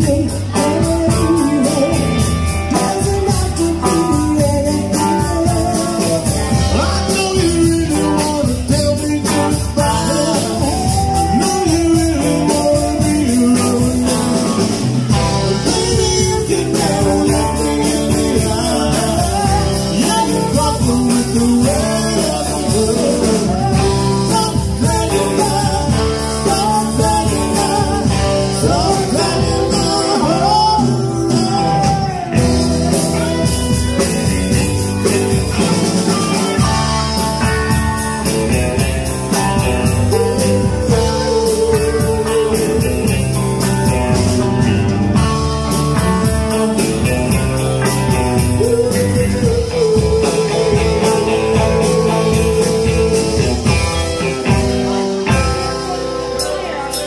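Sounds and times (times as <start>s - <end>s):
woman singing lead: 0.0s - 34.4s, 48.4s - 54.6s
drum kit: 0.0s - 57.0s
electric bass: 0.0s - 57.0s
electric guitars: 0.0s - 57.0s.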